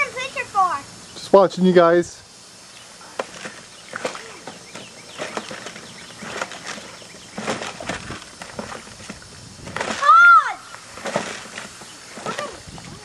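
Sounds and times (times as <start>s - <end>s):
lawn sprinkler hissing: 0.0s - 13.0s
mud splashing: 2.8s - 13.0s
toy lawn mower clattering: 3.2s - 9.2s, 10.7s - 12.6s.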